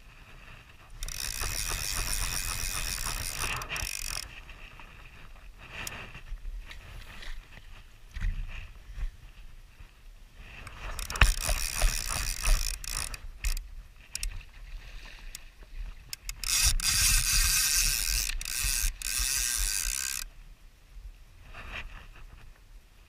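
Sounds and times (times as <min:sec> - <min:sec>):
fishing reel ratchet buzzing: 0:01.0 - 0:04.3, 0:10.7 - 0:14.3, 0:16.1 - 0:20.3.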